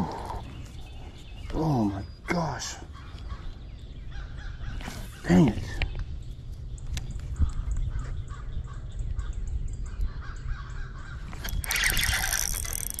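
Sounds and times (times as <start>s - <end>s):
wind rumble on microphone: 3.0s - 13.0s
fishing reel rustling and whirring: 11.3s - 13.0s.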